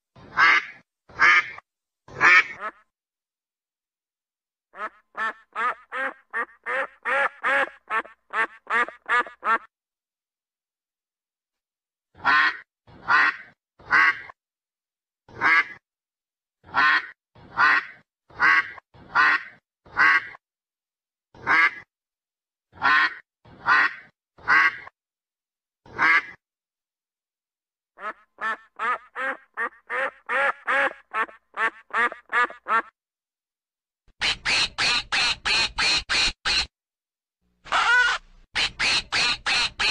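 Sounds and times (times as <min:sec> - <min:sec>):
duck quacking: 0:00.2 - 0:02.9, 0:04.8 - 0:09.7, 0:12.2 - 0:14.4, 0:15.3 - 0:15.8, 0:16.7 - 0:20.4, 0:21.4 - 0:21.9, 0:22.8 - 0:24.9, 0:25.9 - 0:26.4, 0:28.0 - 0:32.9, 0:34.2 - 0:36.7, 0:37.7 - 0:39.9.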